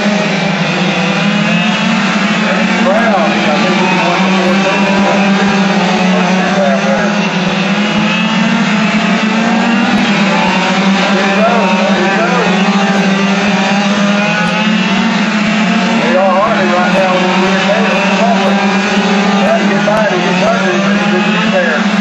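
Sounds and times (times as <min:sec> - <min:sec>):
small race car engines buzzing: 0:00.0 - 0:22.0.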